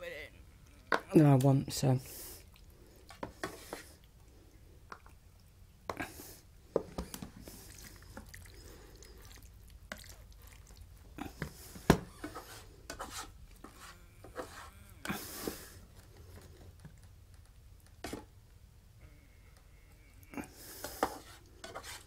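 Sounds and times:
spatula scraping frying pan: 0:03.2 - 0:03.9, 0:11.6 - 0:15.8, 0:20.5 - 0:22.0.

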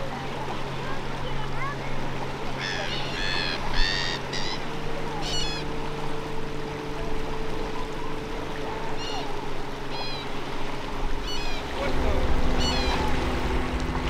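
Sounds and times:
low motor hum: 0:00.0 - 0:14.0
small waves: 0:00.0 - 0:14.0
wind: 0:00.0 - 0:14.0
bird calling: 0:02.6 - 0:05.9, 0:08.6 - 0:13.5.

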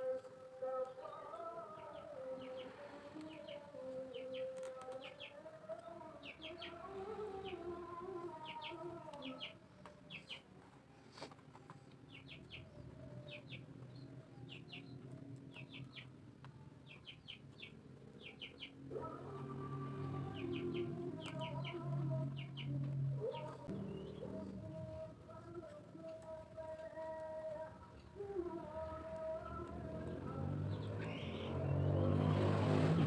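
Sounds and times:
small birds chirping: 0:00.0 - 0:32.4
soft background music: 0:19.1 - 0:33.0.

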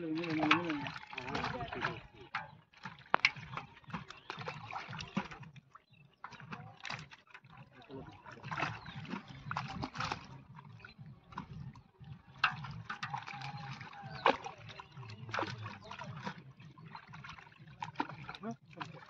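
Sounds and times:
fish flapping and splashing in water: 0:00.0 - 0:19.0.

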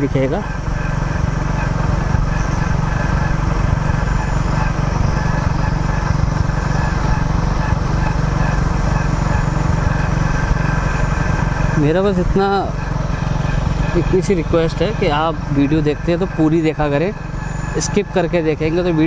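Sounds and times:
motorcycle engine cruising: 0:00.0 - 0:19.0.

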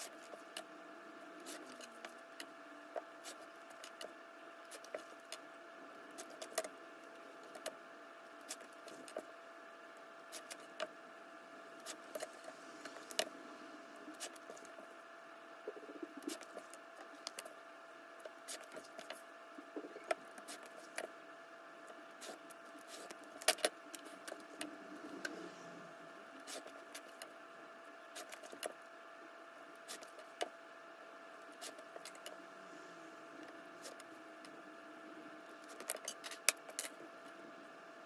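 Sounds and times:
faint hum: 0:00.0 - 0:38.0.

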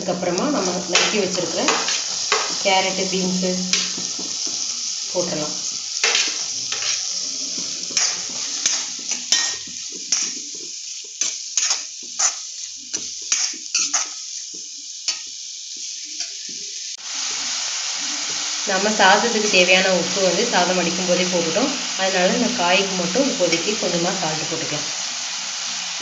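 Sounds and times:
vegetables sizzling in a wok: 0:00.0 - 0:26.0
metal spatula scraping a pan: 0:00.6 - 0:14.4.

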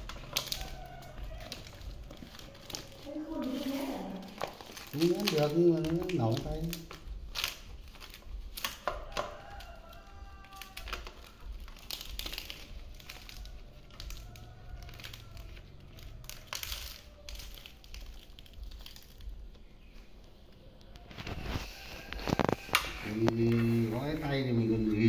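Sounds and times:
leaves rustling and crinkling: 0:00.0 - 0:25.0.

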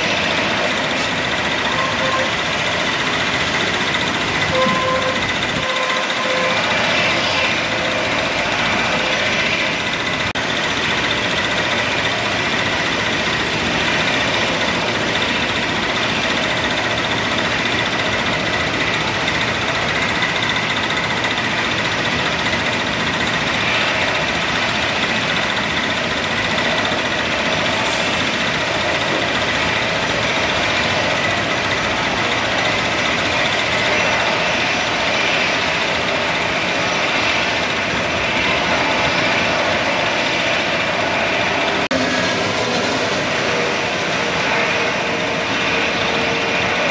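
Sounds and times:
jet engines running: 0:00.0 - 0:46.9.

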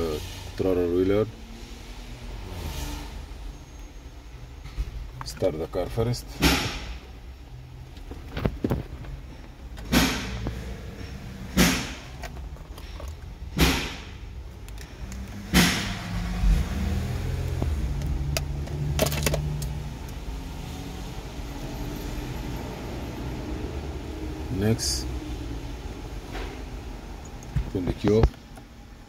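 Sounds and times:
car engine idling: 0:00.0 - 0:29.0
sharp thumps: 0:08.2 - 0:14.4.

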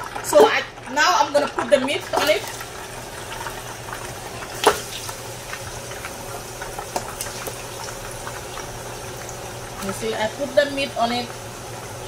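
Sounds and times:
meat sizzling in oil: 0:02.1 - 0:12.0.

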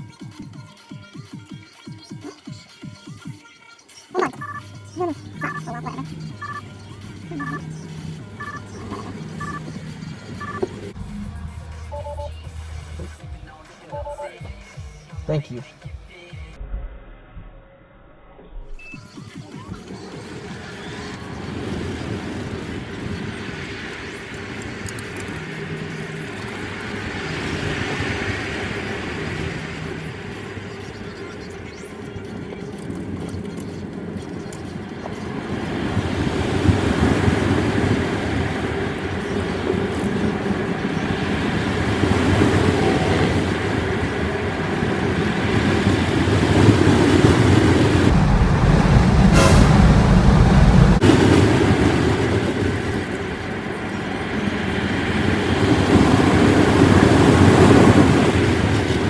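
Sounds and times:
tyre and wind rumble in car cabin: 0:18.6 - 0:59.0
short sharp high sound: 0:49.2 - 0:50.4.

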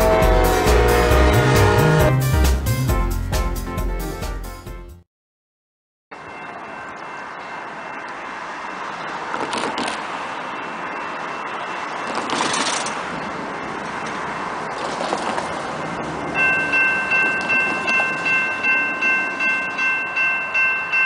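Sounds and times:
steady outdoor noise: 0:06.1 - 0:21.0.

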